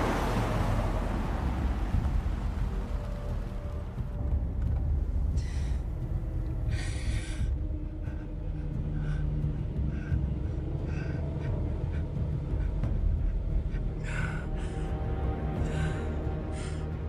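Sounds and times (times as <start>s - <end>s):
car driving rumble inside cabin: 0.0s - 6.6s.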